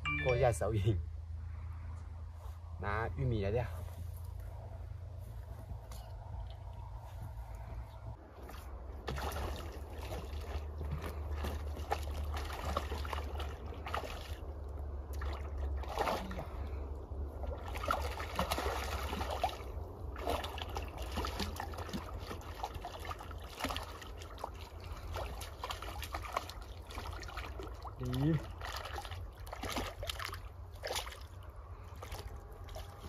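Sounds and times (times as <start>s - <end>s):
steady low rumble: 0.0s - 33.0s
fish splashing in water: 8.4s - 33.0s.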